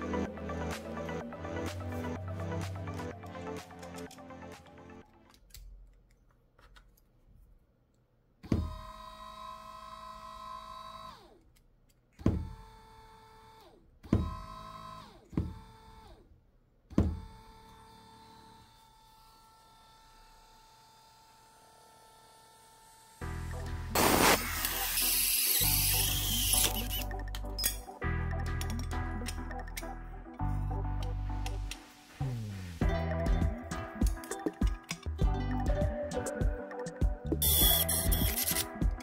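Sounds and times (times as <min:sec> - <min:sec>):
electric motor whine: 0:17.2 - 0:23.2.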